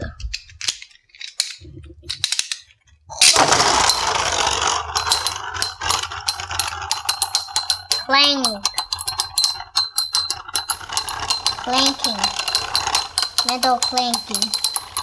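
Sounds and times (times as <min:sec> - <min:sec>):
spinning tops clinking metallically: 0:03.2 - 0:15.0
spinning tops whirring: 0:03.2 - 0:15.0.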